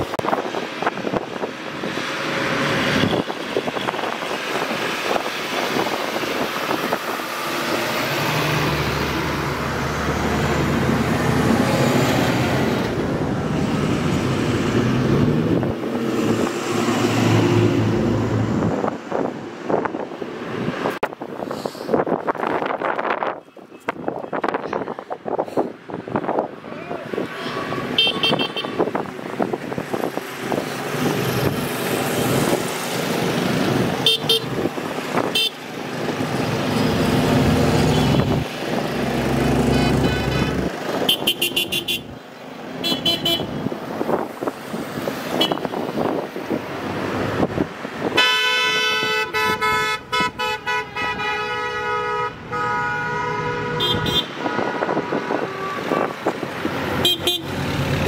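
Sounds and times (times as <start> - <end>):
truck engines running: 0.0 - 58.0
vehicle horns tooting: 27.4 - 28.9, 34.0 - 34.5, 35.3 - 35.6, 39.6 - 42.1, 42.8 - 43.6, 45.3 - 45.8, 48.2 - 56.2, 57.0 - 57.6
long horn blast: 48.2 - 54.4, 55.3 - 56.2.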